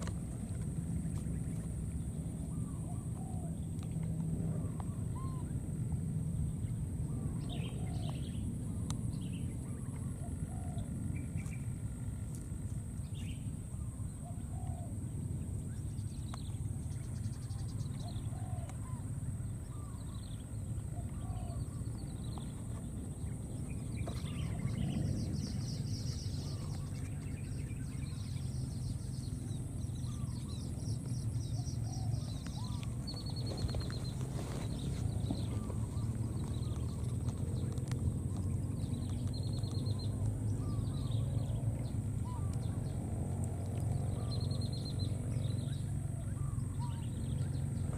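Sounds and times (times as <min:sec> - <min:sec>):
low rumble: 0:00.0 - 0:47.9
bird chirps: 0:15.6 - 0:47.9.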